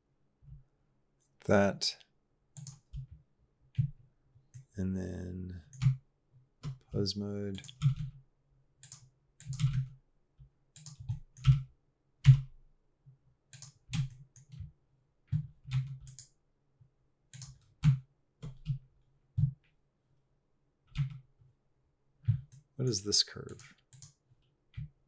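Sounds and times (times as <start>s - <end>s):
keyboard and mouse clicking: 2.6s - 3.1s, 7.5s - 8.2s, 8.8s - 10.0s, 10.7s - 12.5s, 13.5s - 14.7s, 15.3s - 16.3s, 17.3s - 18.8s, 23.5s - 24.9s.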